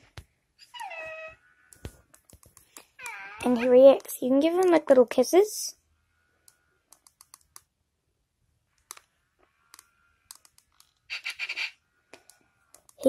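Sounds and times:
clicks and taps of toy handling: 1.7s - 4.8s.

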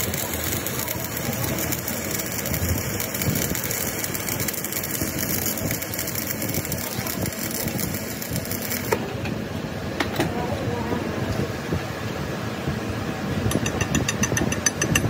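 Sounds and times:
machine running: 0.0s - 9.4s.

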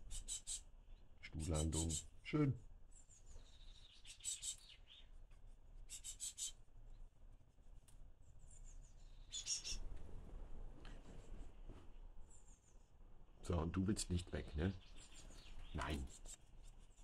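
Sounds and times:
thin high bird calls: 0.0s - 2.2s, 2.9s - 5.2s, 5.8s - 7.0s, 8.4s - 9.9s, 14.0s - 17.0s.

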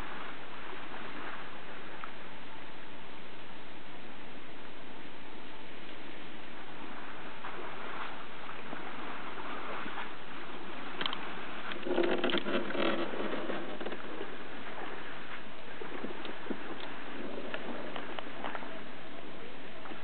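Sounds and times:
small boat on water: 0.0s - 20.0s.

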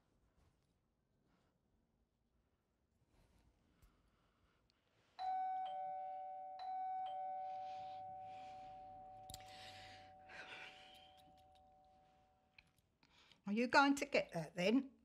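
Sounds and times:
two-tone doorbell chime: 5.2s - 12.4s.

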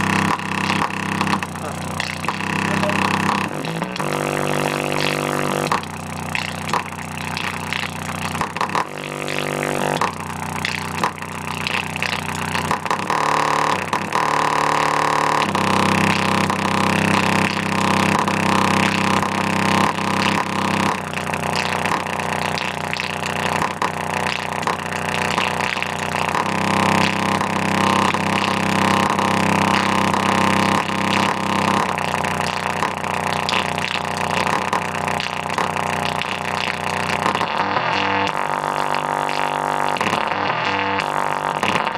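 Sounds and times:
speaker playing bass notes: 0.0s - 41.9s.

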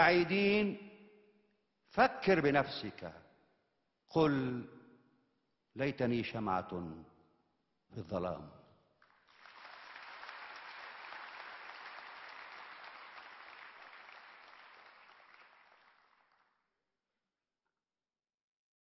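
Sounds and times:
audience applauding: 9.0s - 16.6s.

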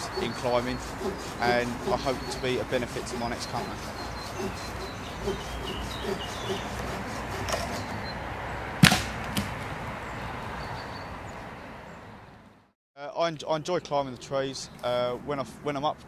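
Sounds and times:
sharp crack: 8.8s - 9.7s.

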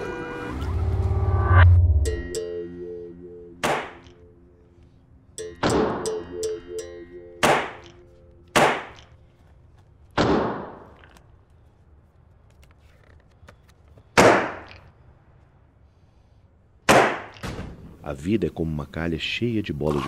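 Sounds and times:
sharp ringing bangs: 2.0s - 4.3s, 5.4s - 9.1s.

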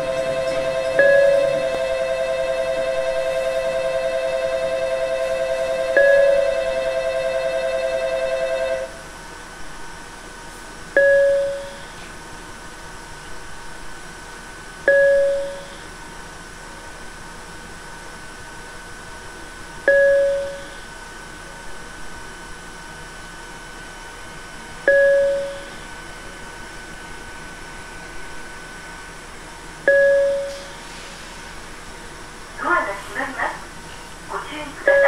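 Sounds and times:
chime-like ding: 0.0s - 8.9s
electric ringing signal: 0.0s - 9.0s, 11.0s - 12.0s, 14.9s - 15.9s, 19.9s - 20.9s, 24.9s - 26.0s, 29.9s - 30.8s.

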